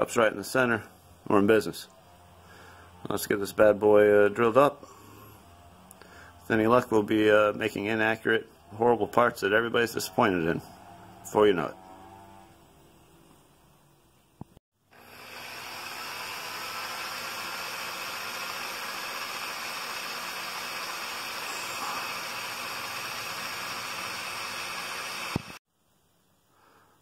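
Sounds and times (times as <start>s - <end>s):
milling machine drilling metal: 15.0s - 25.6s.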